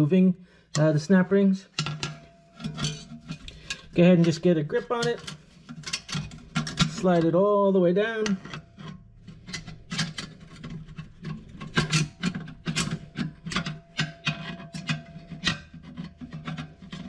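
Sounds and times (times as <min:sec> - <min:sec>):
metal scraping and clicking: 0:00.7 - 0:17.0.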